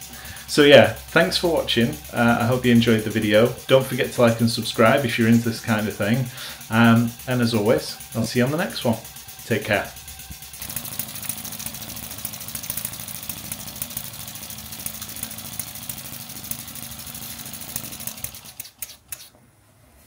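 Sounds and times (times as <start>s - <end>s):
steam engine exhaust beat: 0.0s - 18.9s
mechanical clatter: 0.0s - 19.4s
sharp clicks: 17.8s - 19.3s.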